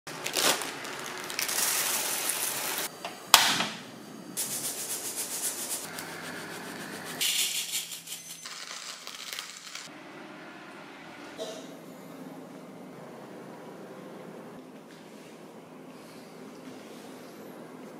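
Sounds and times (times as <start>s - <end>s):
coffee beans rattling in strainer: 0.8s - 2.9s.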